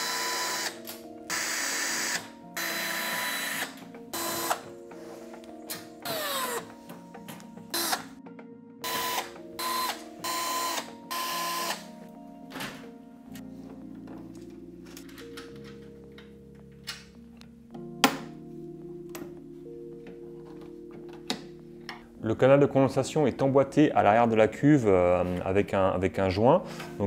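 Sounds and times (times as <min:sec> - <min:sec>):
electric screwdriver running: 0:00.0 - 0:04.7, 0:08.8 - 0:11.8
background music: 0:00.0 - 0:27.0.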